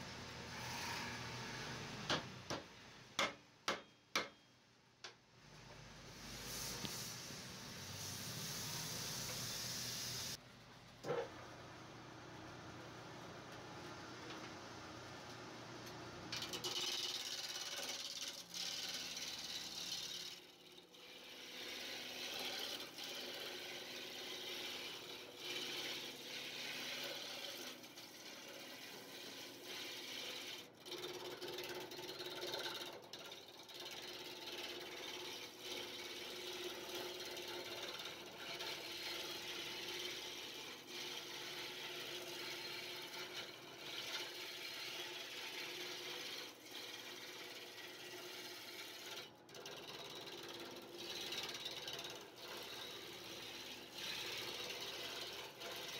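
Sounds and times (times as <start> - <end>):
lathe hum: 11.5 - 55.9
turning tool cutting wood: 16.3 - 55.9.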